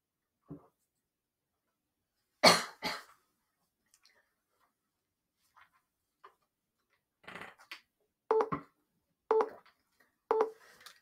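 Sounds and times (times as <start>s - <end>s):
timer beeping: 8.3s - 8.5s, 9.3s - 9.6s, 10.3s - 10.6s.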